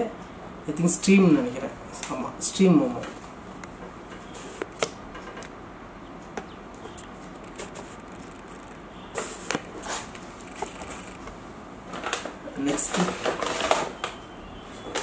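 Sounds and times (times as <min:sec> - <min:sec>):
packaging rustling and crinkling: 0:07.0 - 0:15.0.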